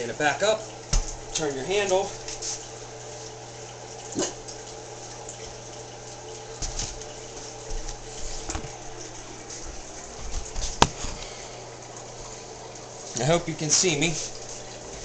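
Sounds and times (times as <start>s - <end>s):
low electrical hum: 0.0s - 15.0s
handling knocks and rustles: 9.6s - 11.2s.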